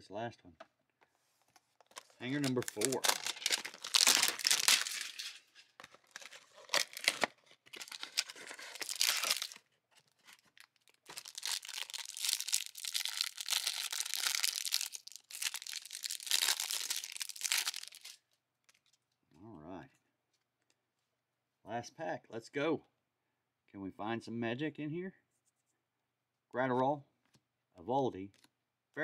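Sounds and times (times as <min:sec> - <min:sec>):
cardboard box being opened: 0:01.9 - 0:09.6
plastic wrap crinkling and tearing: 0:01.9 - 0:18.9.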